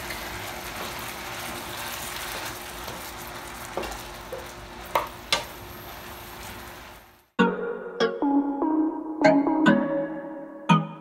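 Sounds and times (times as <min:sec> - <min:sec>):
chicken sizzling in a frying pan: 0:00.0 - 0:07.3
wooden spatula knocking on pan: 0:03.7 - 0:05.5
electronic music: 0:07.4 - 0:11.0.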